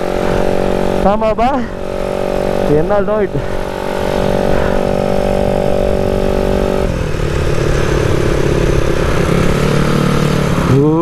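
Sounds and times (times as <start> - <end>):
wind rush: 0.0 - 10.7
scooter engine revving: 0.0 - 11.0.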